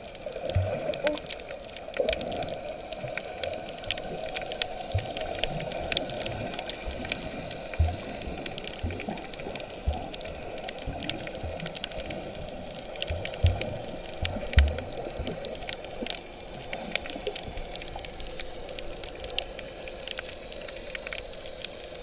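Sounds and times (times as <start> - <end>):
underwater hiss: 0.1 - 22.0.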